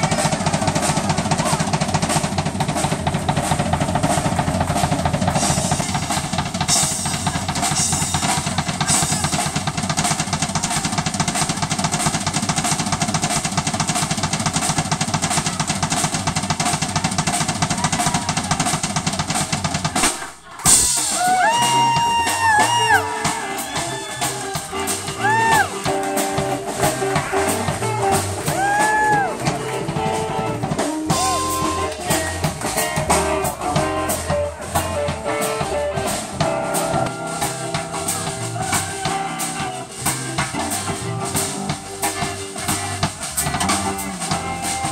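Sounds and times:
live blues band playing: 0.0 - 44.9
electric guitar lead bent notes: 20.6 - 44.9.

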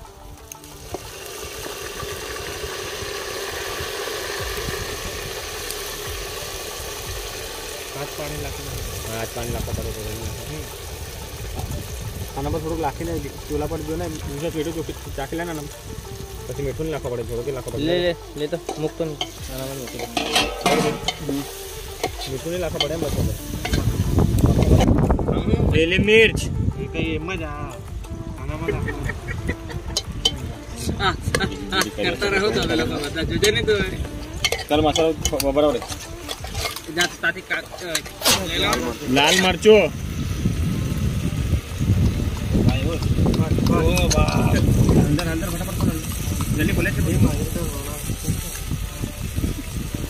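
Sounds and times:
tomatoes sizzling in a pot: 0.0 - 26.2, 27.0 - 50.0
metal spoon scraping pot: 18.6 - 24.0, 34.2 - 39.6.

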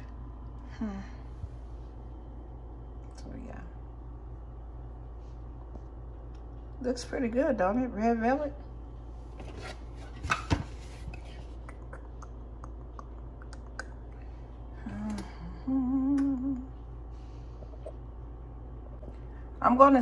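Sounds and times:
low background hum: 0.0 - 20.0
woman humming: 11.6 - 16.9.

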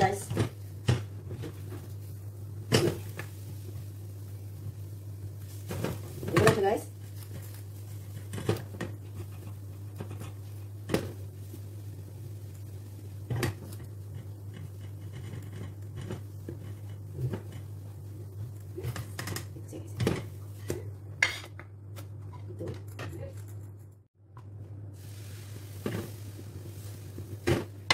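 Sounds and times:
spatula scraping frying pan: 13.2 - 19.0.

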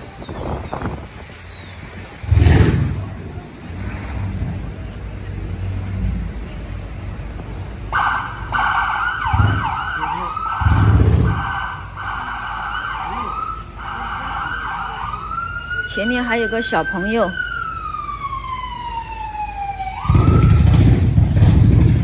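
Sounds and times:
deep rumbles: 0.0 - 7.8, 9.2 - 9.9, 10.5 - 11.9, 20.0 - 22.0
low traffic rumble: 0.0 - 22.0
emergency siren wailing: 7.9 - 22.0.

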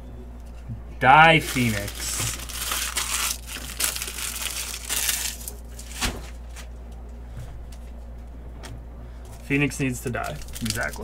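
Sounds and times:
low steady hum: 0.0 - 11.0
foil wrappers crinkling and tearing: 1.3 - 6.8, 9.4 - 11.0.

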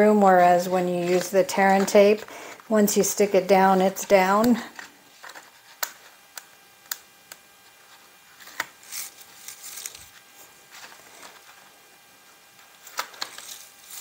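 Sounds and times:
paper rustling: 0.4 - 2.2, 8.4 - 11.6, 12.8 - 14.0.

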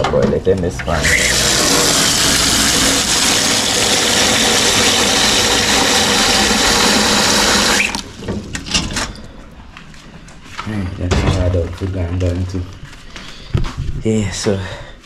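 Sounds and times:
tap water pouring into pot: 1.0 - 8.3.

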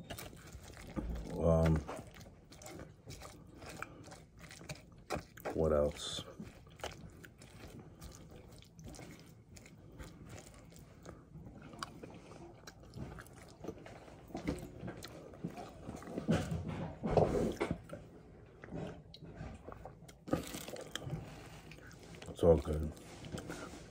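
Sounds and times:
person chewing lettuce: 0.0 - 23.9
person sipping a drink: 17.2 - 23.9.

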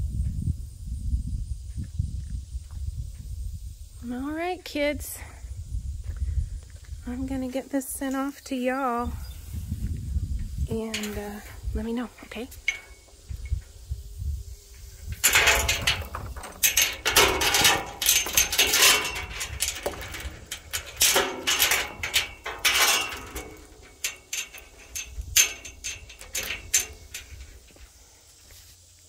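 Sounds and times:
footsteps on grass and dirt: 5.9 - 8.4, 27.0 - 29.0.

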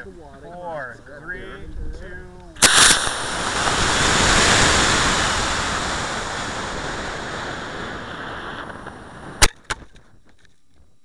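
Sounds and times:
rocket flight hiss: 2.6 - 9.6
sharp cracks: 2.6 - 10.1.

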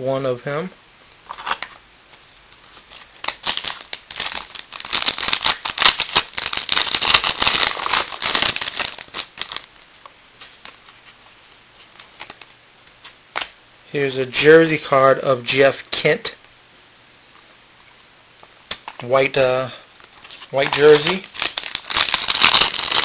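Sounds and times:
wrapper tearing and crinkling: 1.3 - 1.8, 2.7 - 9.8, 20.2 - 23.0.

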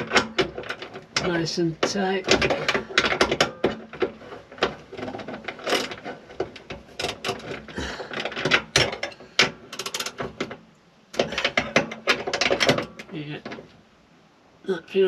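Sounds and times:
ratchet wrench clicking: 9.7 - 10.2.

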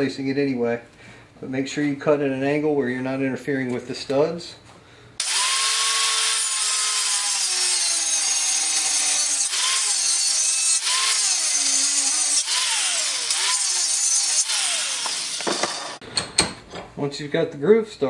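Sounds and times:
angle grinder cutting steel: 5.2 - 16.0.

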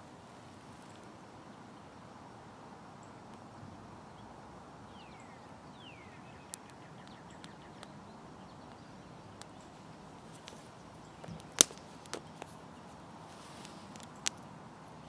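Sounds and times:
kindling fire crackling: 6.2 - 14.8.

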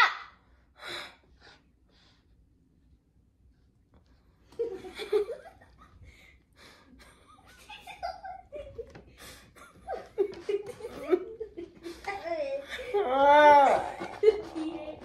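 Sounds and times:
woman laughing: 7.0 - 15.0.

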